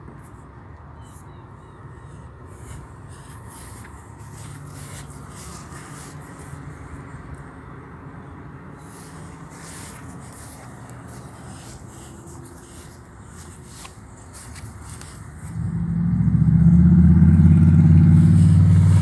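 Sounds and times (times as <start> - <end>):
microphone rustling: 8.9 - 15.7.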